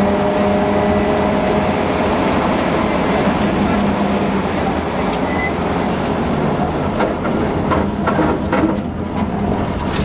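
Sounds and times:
rally car engine running hard: 0.0 - 5.1
road and tyre noise: 0.0 - 10.0
exhaust cracks and pops: 8.1 - 10.0.

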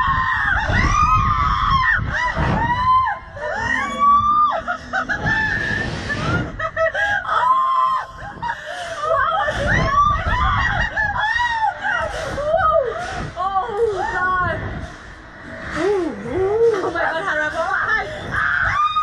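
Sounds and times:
woman shrieking and laughing: 0.0 - 14.5
wind buffeting microphone: 0.0 - 19.0.

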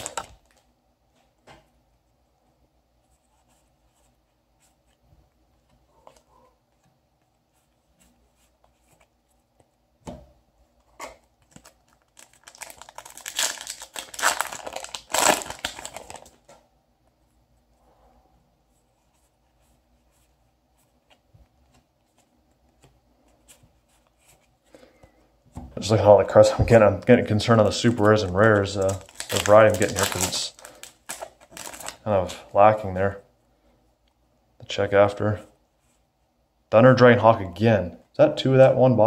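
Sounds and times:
foil pack tearing and crinkling: 11.9 - 16.4, 28.0 - 32.0.

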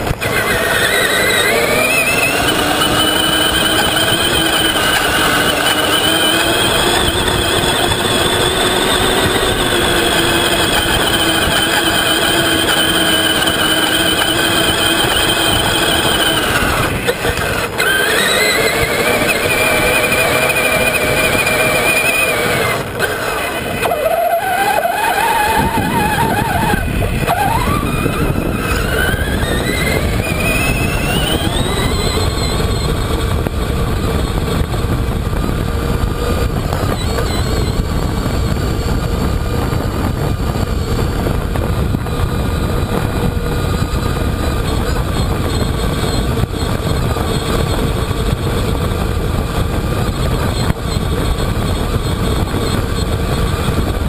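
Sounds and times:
electric motor whining: 0.0 - 54.0.

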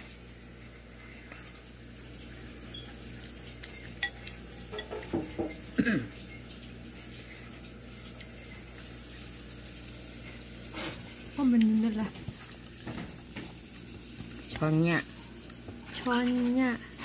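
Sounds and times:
fork and spoon clinking in bowl: 3.6 - 5.2.

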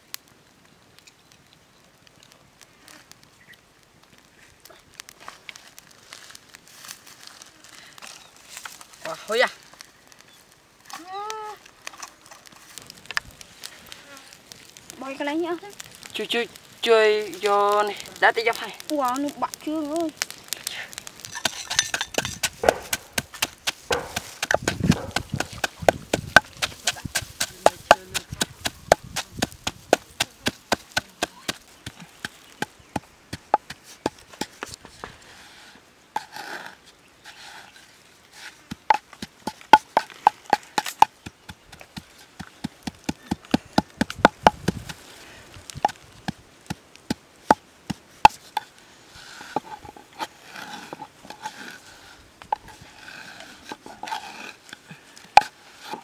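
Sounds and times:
pestle pounding in wooden mortar: 21.4 - 34.5, 38.7 - 45.0
knife tapping on wooden log: 21.9 - 28.8.

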